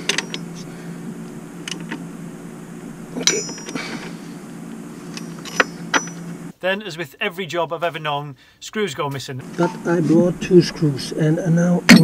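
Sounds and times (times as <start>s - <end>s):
metal tools clinking: 0.0s - 4.3s, 5.0s - 6.5s
loud ringing metallic clank: 0.0s - 6.5s
steady low hum: 0.0s - 6.5s, 9.4s - 12.0s.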